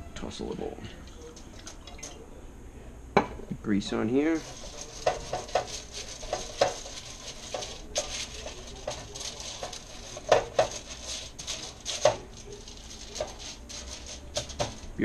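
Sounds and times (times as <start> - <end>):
dishes and utensils clicking: 4.4 - 15.0.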